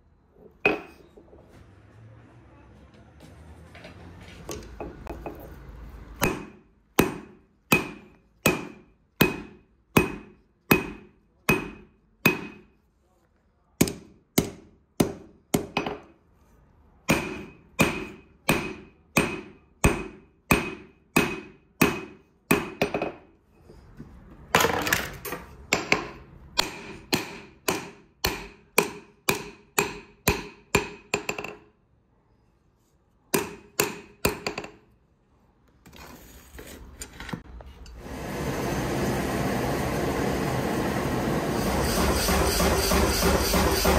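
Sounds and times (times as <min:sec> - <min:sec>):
hammer striking metal on anvil: 0:06.2 - 0:12.8, 0:13.8 - 0:16.1, 0:17.0 - 0:23.2, 0:25.7 - 0:31.7, 0:33.3 - 0:34.8.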